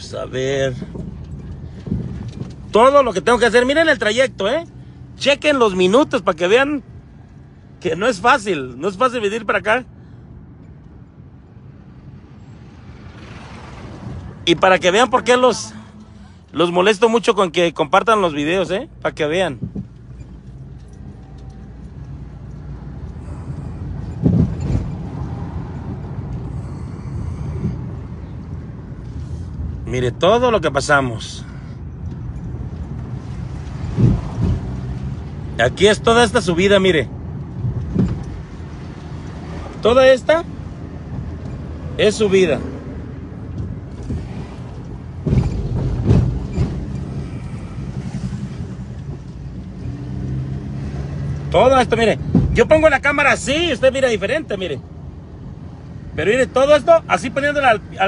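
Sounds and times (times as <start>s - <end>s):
truck engine and road rumble: 0.0s - 58.0s
thump: 24.2s - 25.0s, 37.7s - 38.3s, 45.2s - 47.2s, 52.3s - 52.6s.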